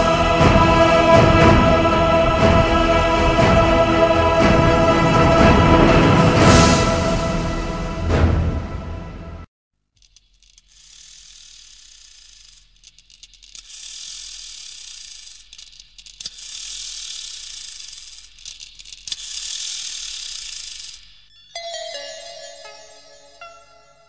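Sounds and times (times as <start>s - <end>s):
background music: 0.0s - 9.5s, 21.6s - 24.0s
hissing crackling sparkle effects: 21.6s - 24.0s.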